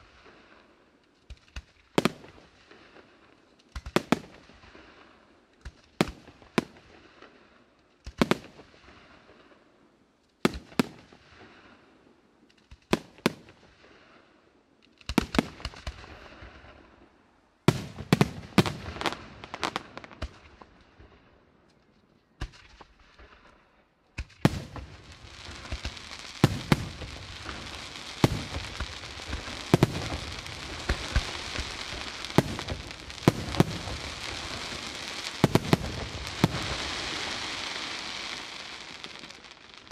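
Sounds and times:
firework crackle: 0.0s - 9.7s, 10.3s - 39.9s
firework shells bursting: 24.2s - 39.9s.

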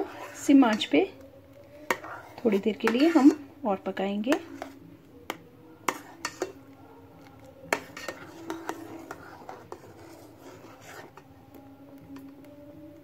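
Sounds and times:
metal ladle scraping pan: 0.0s - 1.2s, 1.8s - 6.7s, 7.6s - 11.4s.

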